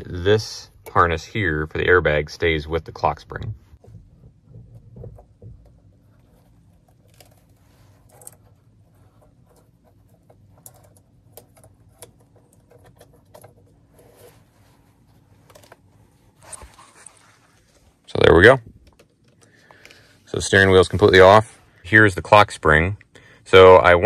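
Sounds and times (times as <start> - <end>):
small clicks and scrapes: 3.8 - 17.9.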